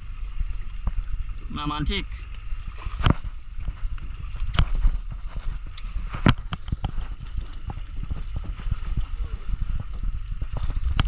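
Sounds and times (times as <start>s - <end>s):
wind and water around a boat: 0.0s - 11.0s.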